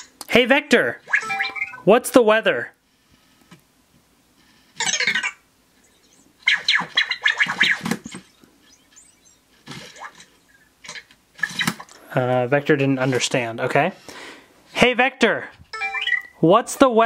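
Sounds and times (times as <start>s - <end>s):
robot electronic chirps and bleeps: 1.0s - 1.9s, 4.8s - 10.7s, 15.8s - 16.4s.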